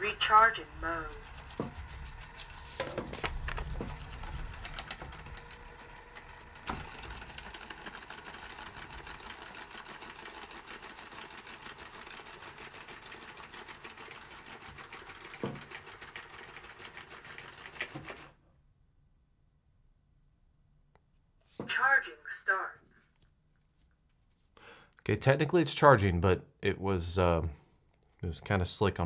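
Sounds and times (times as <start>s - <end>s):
robot vacuum motor whir: 1.2s - 10.4s.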